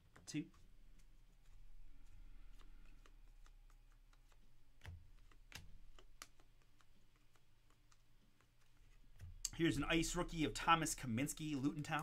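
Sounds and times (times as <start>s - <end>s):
trading cards being flipped: 0.1s - 9.6s.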